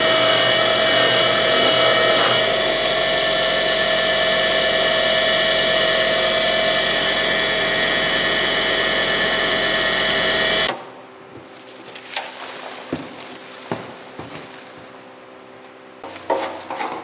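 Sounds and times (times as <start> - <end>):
wire wheel grinder hiss and whine: 0.0 - 10.7.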